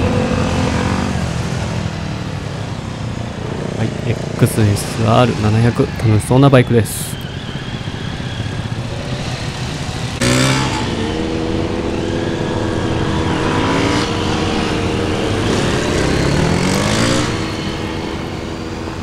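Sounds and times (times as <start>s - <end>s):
motorcycle engine revving: 0.0s - 2.5s, 6.9s - 19.0s.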